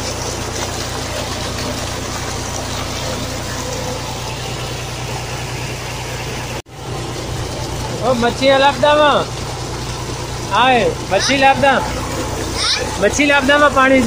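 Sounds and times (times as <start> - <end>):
pump running drone: 0.0 - 14.0
water jet gushing into channel: 0.0 - 14.0.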